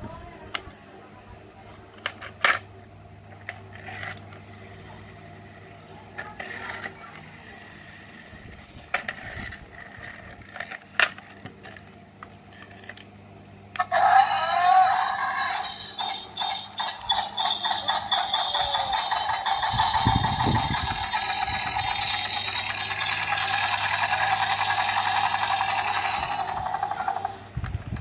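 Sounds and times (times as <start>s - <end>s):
toy tractor clicking and rattling: 2.0s - 2.7s, 3.4s - 4.5s, 6.1s - 7.2s, 8.6s - 12.0s, 13.8s - 28.0s.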